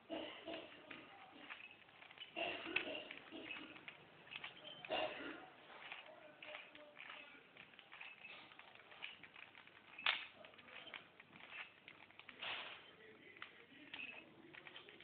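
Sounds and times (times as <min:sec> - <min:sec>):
plastic rubbing rasp: 0:00.0 - 0:15.0
puzzle cube clicking and rattling: 0:00.5 - 0:15.0.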